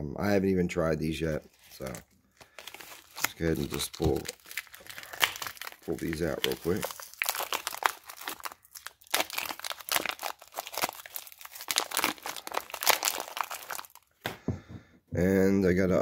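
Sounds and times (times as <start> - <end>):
plastic packaging crinkling and tearing: 1.3 - 14.1.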